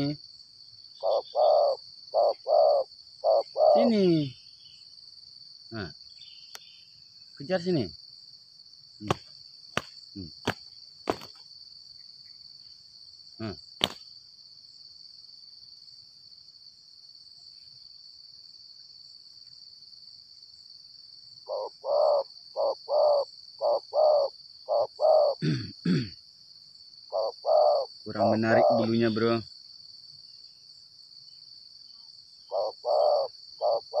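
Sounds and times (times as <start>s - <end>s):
insects buzzing: 0.0s - 34.0s
dove cooing: 1.0s - 4.4s, 21.4s - 25.6s, 27.1s - 29.2s, 32.4s - 34.0s.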